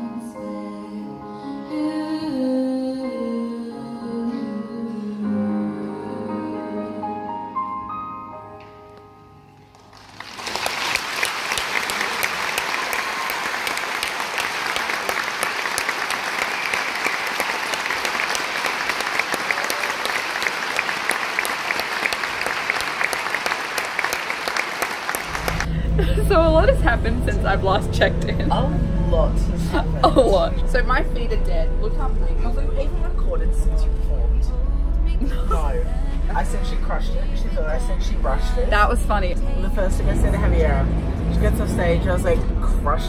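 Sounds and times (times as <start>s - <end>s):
grand piano playing: 0.0s - 10.2s, 25.1s - 43.0s
audience applauding: 9.7s - 26.1s.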